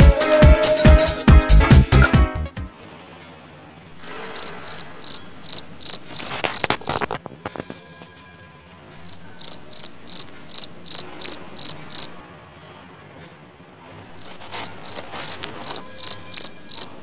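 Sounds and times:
cricket chirping: 4.0 - 7.1, 9.0 - 12.2, 14.2 - 17.0.

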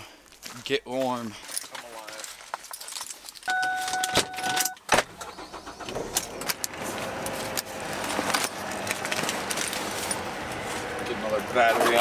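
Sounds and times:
clicks and jangling: 1.4 - 4.8
car two-tone warning chime: 3.5 - 4.8
car engine humming: 3.5 - 12.0.

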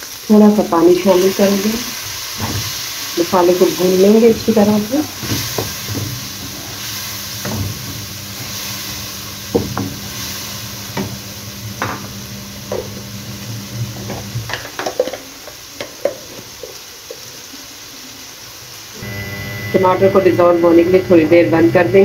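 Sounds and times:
masala sizzling in a wok: 0.0 - 22.0
wooden spoon scraping a pan: 5.2 - 11.2.

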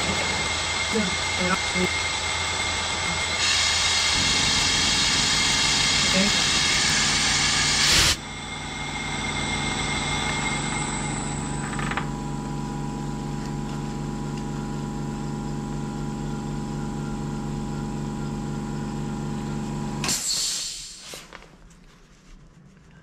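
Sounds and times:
milling machine motor hum: 0.0 - 20.0
bright hissing: 0.1 - 11.3.

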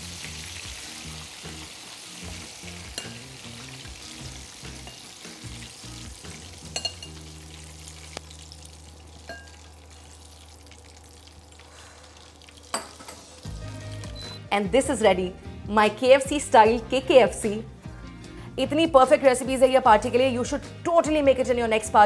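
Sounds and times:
chicken sizzling in hot oil: 0.0 - 14.4
metal spoon clinking: 3.0 - 3.3, 4.8 - 5.0, 6.7 - 7.2, 9.3 - 9.7.

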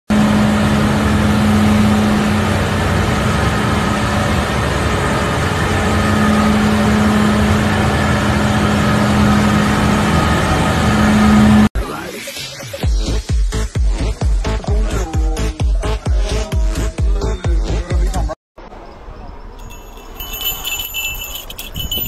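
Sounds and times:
machinery droning: 0.1 - 11.7.

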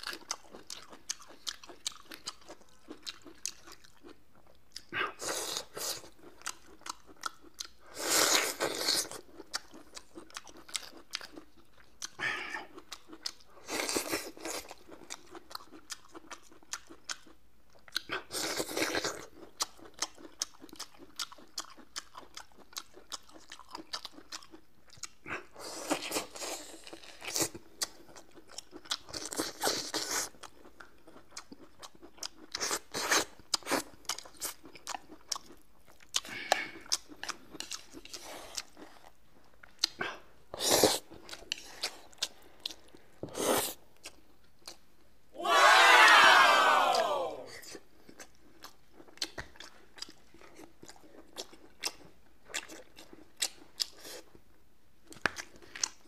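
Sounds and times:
chewing clicks: 33.5 - 40.1, 48.1 - 54.1.

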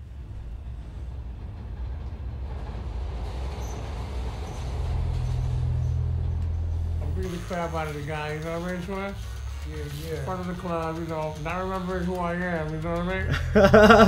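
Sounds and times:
subway train rumbling: 0.0 - 14.0
deep steady hum: 4.2 - 14.0.

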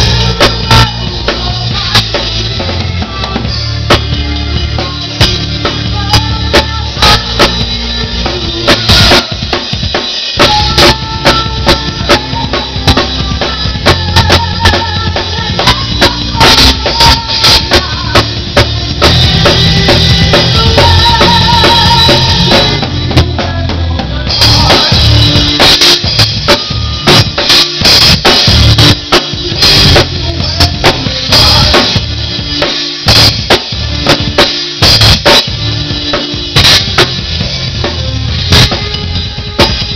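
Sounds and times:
drum kit played hard: 0.0 - 39.9.

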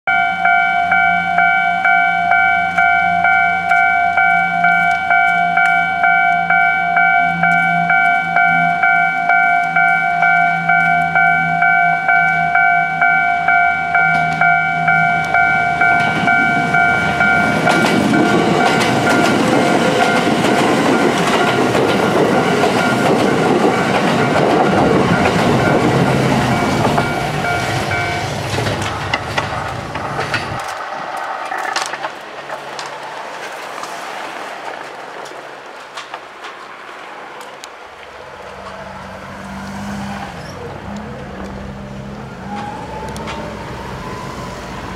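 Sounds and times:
level crossing bell ringing: 0.1 - 28.4
train wheels clattering: 13.8 - 37.6.

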